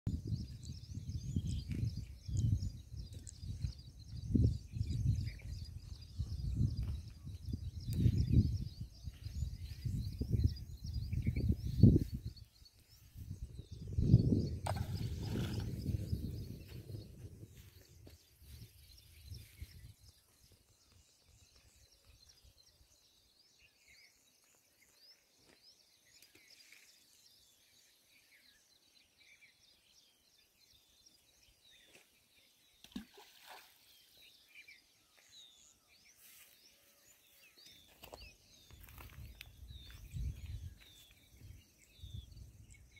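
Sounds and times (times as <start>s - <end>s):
low rumble on microphone: 0.1s - 20.2s
small birds chirping: 0.1s - 42.9s.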